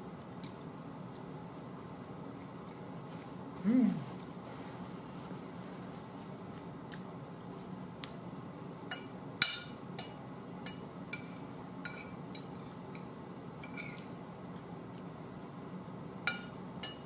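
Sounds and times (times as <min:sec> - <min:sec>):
soft chewing: 0:00.0 - 0:09.1, 0:13.8 - 0:15.2
fork scraping a plate: 0:11.2 - 0:12.2, 0:13.6 - 0:14.1.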